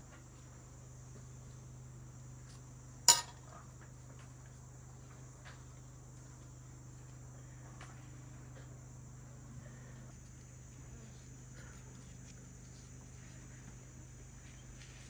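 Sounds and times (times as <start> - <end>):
sharp ringing clink: 3.1 - 3.4.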